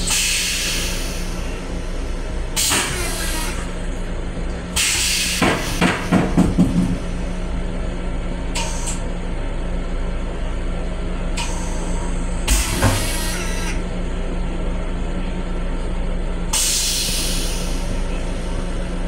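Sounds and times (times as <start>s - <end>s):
railcar low hum: 0.0s - 19.0s
uneven knocks and rattles: 5.4s - 7.1s.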